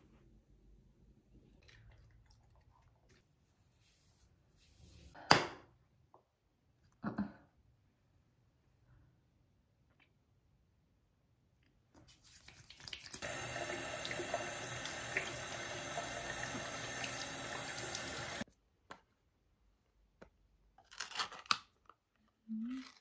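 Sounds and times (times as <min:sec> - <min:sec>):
tap running into sink: 0:13.2 - 0:18.4.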